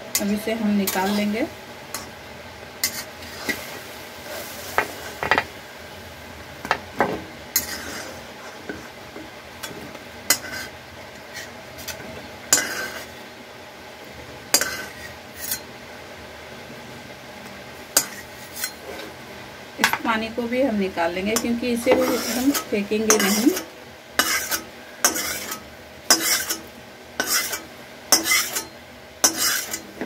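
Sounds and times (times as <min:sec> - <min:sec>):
metal spatula scraping a pot: 0:02.8 - 0:03.7, 0:07.6 - 0:08.8, 0:10.3 - 0:13.2, 0:14.5 - 0:15.7, 0:18.0 - 0:19.1, 0:21.3 - 0:30.0.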